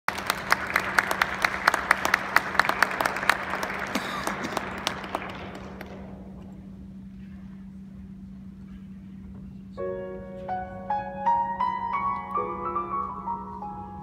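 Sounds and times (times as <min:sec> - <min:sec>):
audience applauding: 0:00.1 - 0:06.4.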